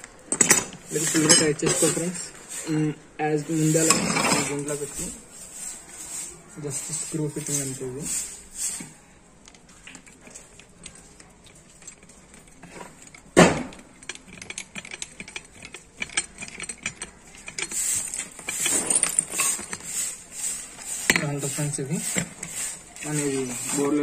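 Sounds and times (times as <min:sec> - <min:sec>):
metal rod clinking in pump head: 0:00.3 - 0:08.9, 0:10.0 - 0:22.8
metal rattling: 0:10.1 - 0:24.0.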